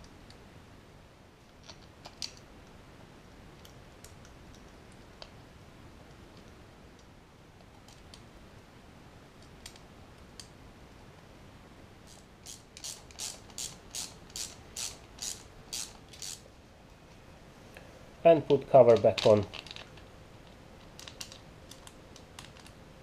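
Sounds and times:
ratcheting screwdriver strokes: 0:12.1 - 0:16.4.

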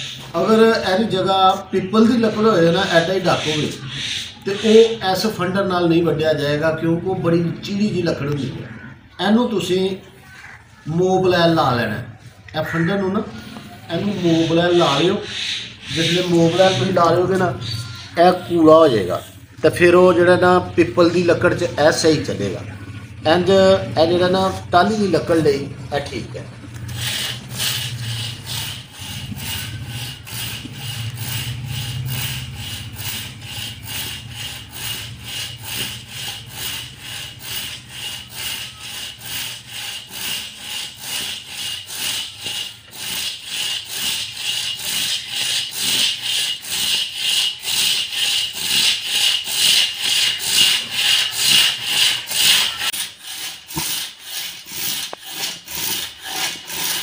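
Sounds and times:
hand saw cutting a log: 0:13.4 - 0:17.8, 0:23.3 - 0:57.0.

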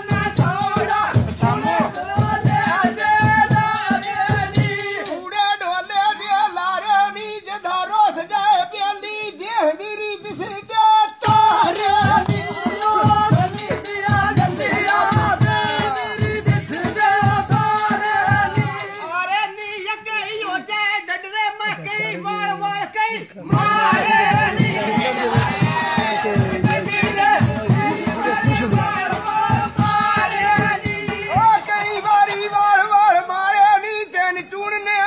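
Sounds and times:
drum beat: 0:00.0 - 0:05.2, 0:11.2 - 0:19.3, 0:23.5 - 0:32.2
rattling percussion: 0:00.0 - 0:05.3, 0:11.2 - 0:20.0, 0:23.5 - 0:32.2
person singing folk melody: 0:00.0 - 0:35.0.

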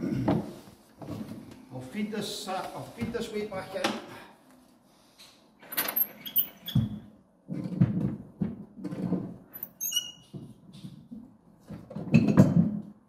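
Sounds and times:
short high squeak: 0:09.8 - 0:10.3.

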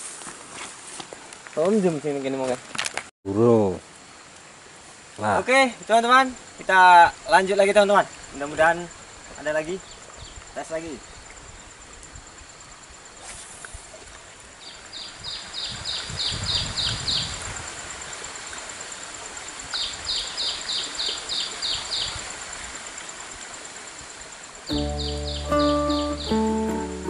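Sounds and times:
high insect drone: 0:03.5 - 0:27.0
bird chirping: 0:24.7 - 0:27.0.

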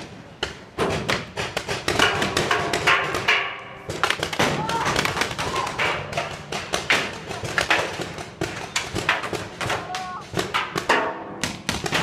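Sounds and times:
players calling out: 0:04.4 - 0:06.1.

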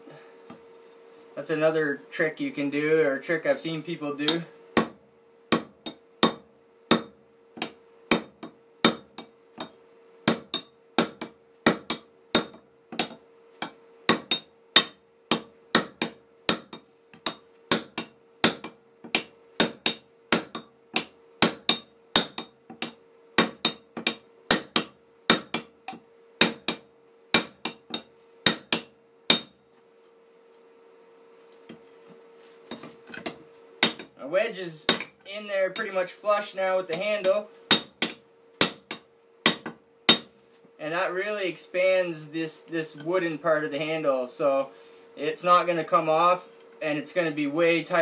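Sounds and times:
hammer striking metal wedge: 0:04.3 - 0:29.6, 0:32.7 - 0:34.1, 0:34.9 - 0:35.2, 0:37.7 - 0:40.3.

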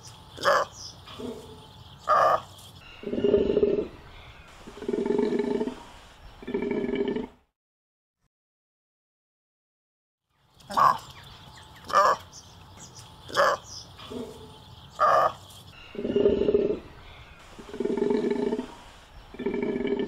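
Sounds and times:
takin long low calls: 0:03.0 - 0:07.3, 0:13.3 - 0:20.0.

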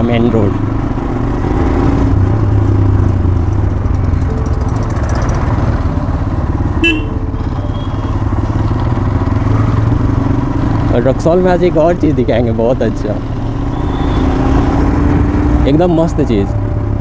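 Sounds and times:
motorcycle engine running: 0:00.0 - 0:17.0
horn toot: 0:06.8 - 0:08.1.

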